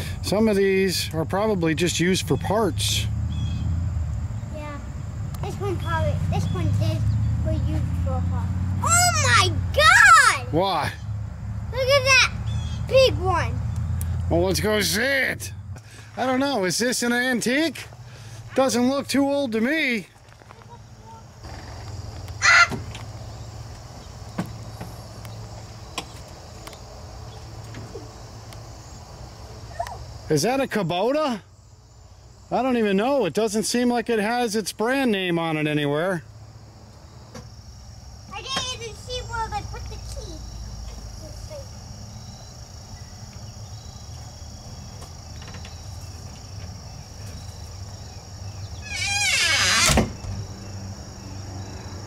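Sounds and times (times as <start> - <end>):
crickets chirping: 0.0 - 52.0
high-pitched insect chorus: 0.0 - 52.0.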